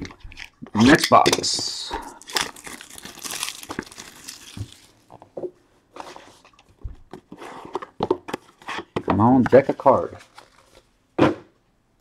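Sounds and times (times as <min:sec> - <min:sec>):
plastic wrapping crinkling and tearing: 0:02.1 - 0:05.2.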